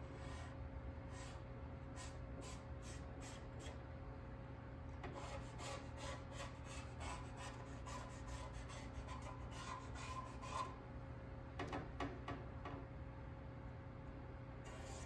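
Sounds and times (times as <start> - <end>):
steady low hum: 0.0 - 15.0
scraping on sheet metal: 5.1 - 10.8, 14.7 - 15.0.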